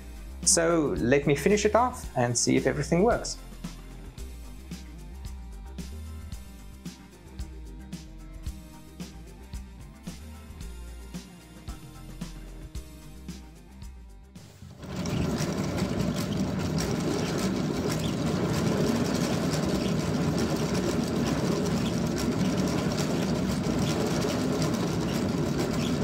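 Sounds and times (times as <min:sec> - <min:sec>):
faint background music: 0:00.0 - 0:26.0
wooden gears rattling: 0:14.6 - 0:26.0.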